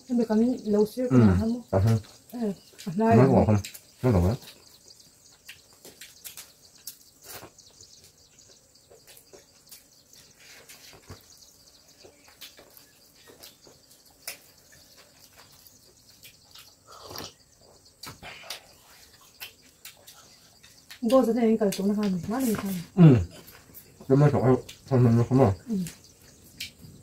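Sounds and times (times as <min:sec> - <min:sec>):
eating clicks and soft taps: 0:11.9 - 0:22.7.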